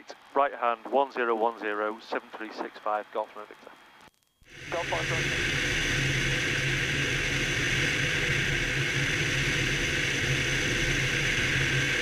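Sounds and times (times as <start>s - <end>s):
aircraft engine drone: 4.5s - 12.0s
airflow hiss: 4.5s - 12.0s.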